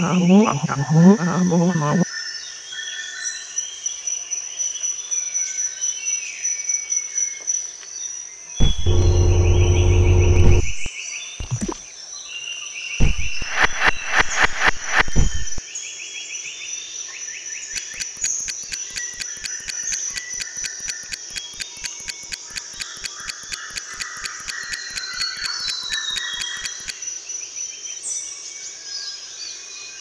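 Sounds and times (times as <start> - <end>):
fast clock ticking: 17.8 - 26.9.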